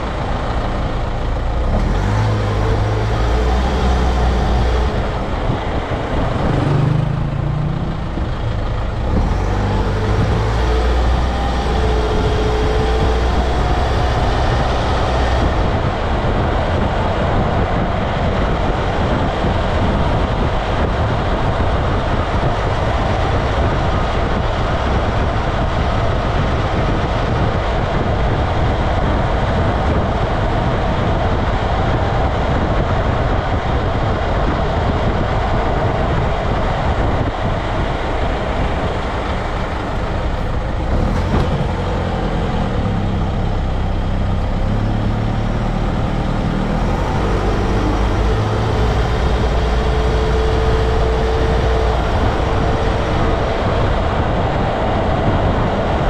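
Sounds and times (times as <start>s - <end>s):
tyre roar on pavement: 0.0s - 56.0s.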